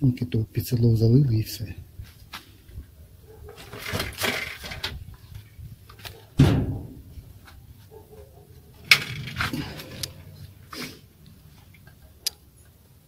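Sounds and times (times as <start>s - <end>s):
heavy thump: 6.4s - 7.1s.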